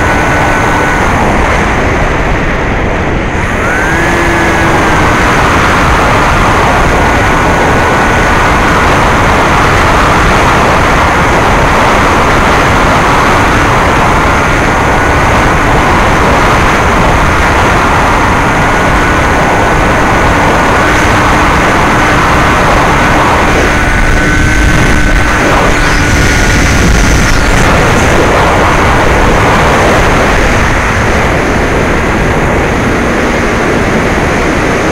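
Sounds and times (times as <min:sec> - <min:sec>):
electric motor high whine: 0:00.0 - 0:34.9
loud rushing wind: 0:00.0 - 0:34.9.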